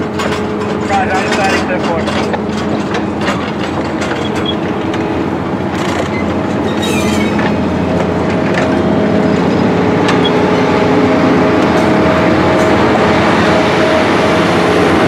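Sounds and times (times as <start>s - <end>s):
train wheels rumbling and clicking: 0.0s - 15.0s
high wheel squeals: 4.1s - 4.7s, 6.0s - 7.9s, 9.2s - 10.9s.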